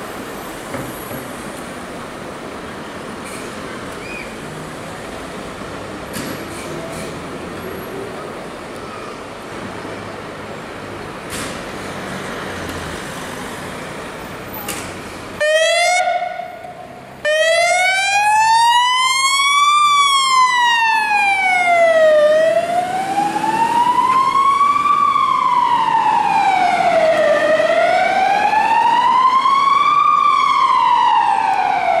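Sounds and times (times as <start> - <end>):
street traffic: 0.0 - 32.0
fire engine siren wailing: 15.4 - 32.0.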